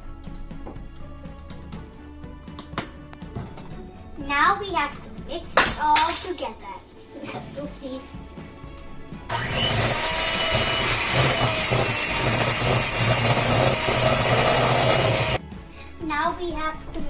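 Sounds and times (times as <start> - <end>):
electric hand mixer whirring: 9.3 - 15.4.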